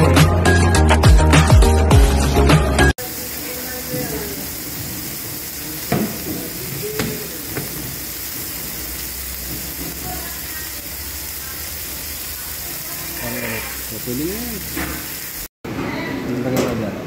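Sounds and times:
fish sizzling in oil: 3.0s - 15.6s.

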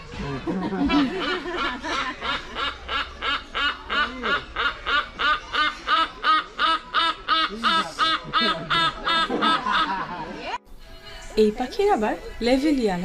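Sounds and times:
hornbill nasal quacking calls: 0.9s - 9.9s.

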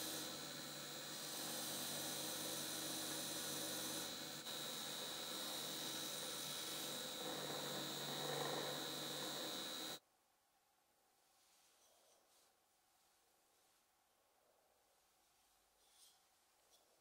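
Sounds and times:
polishing machine whining: 0.0s - 10.0s.

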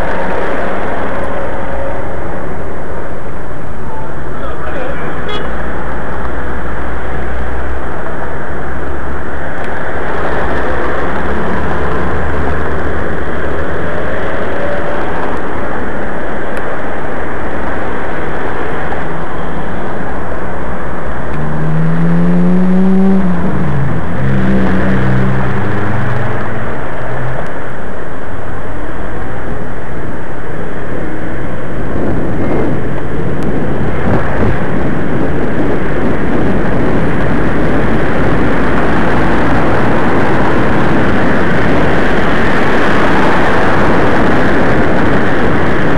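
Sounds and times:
car traffic: 0.0s - 45.9s
wind and road noise: 0.0s - 45.9s
vehicle engine rising in pitch: 21.0s - 27.8s.

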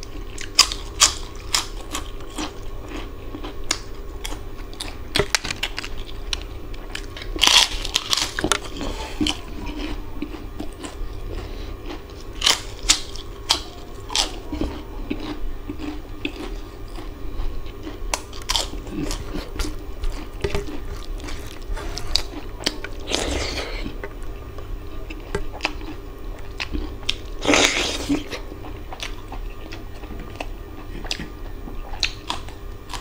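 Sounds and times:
low steady hum: 0.0s - 33.0s
wet chewing and lip-smacking: 25.0s - 33.0s.

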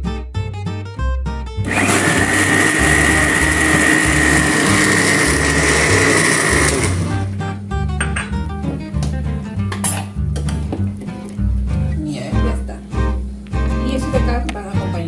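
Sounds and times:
blender running: 1.6s - 7.4s.

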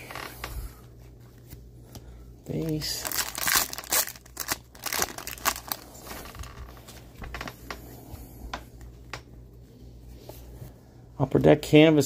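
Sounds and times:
foil wrapper crinkling: 2.5s - 6.8s.

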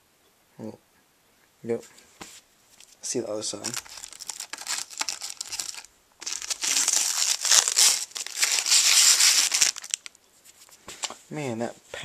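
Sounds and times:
plastic wrapping crinkling: 2.8s - 11.2s.

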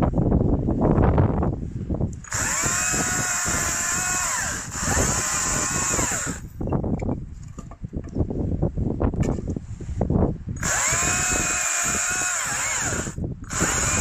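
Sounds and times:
battery chainsaw whining: 2.2s - 6.5s, 10.6s - 14.0s.

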